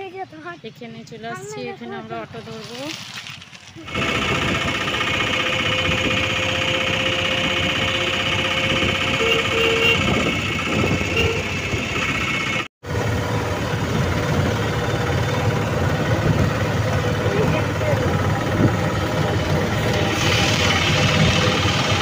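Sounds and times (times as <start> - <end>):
auto-rickshaw engine rumble: 0.0 - 22.0
short horn beeps: 7.6 - 10.3, 11.1 - 11.6.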